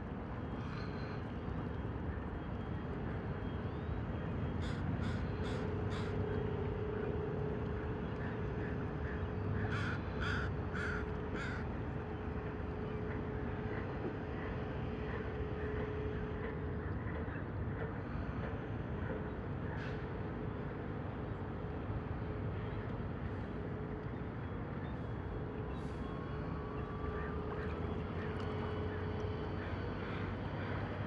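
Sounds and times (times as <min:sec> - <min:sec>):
distant ship rumble: 0:00.0 - 0:31.0
crow cawing: 0:09.7 - 0:11.6.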